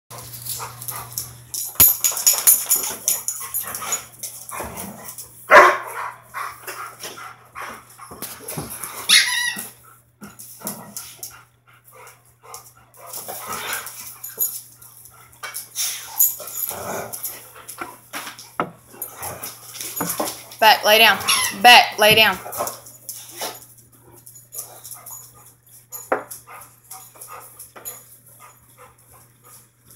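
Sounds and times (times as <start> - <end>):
dogs scuffling on tile floor: 0.1 - 21.6, 22.4 - 29.9
dogs barking: 5.5 - 6.3.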